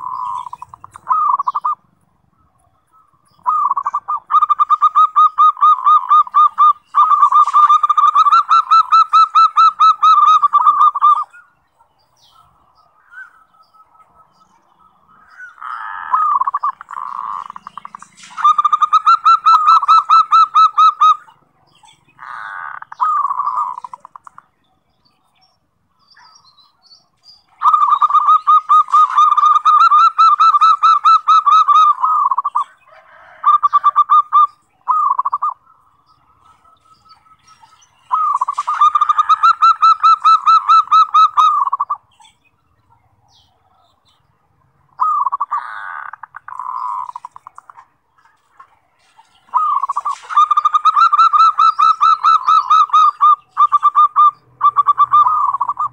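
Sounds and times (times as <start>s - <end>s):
dove cooing: 0.0s - 11.4s, 12.2s - 24.4s, 27.5s - 44.3s, 44.9s - 55.9s.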